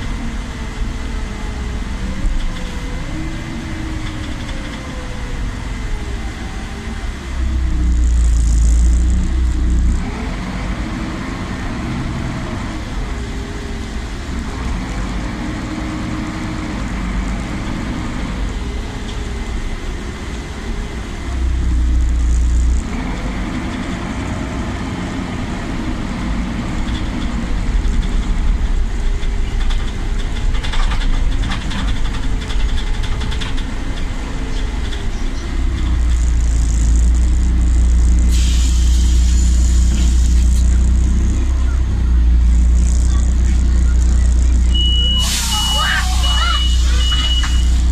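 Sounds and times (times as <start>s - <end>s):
bus engine revving through gears: 0.0s - 47.9s
road rumble: 0.0s - 47.9s
brief air hiss: 38.3s - 40.4s, 45.2s - 47.0s.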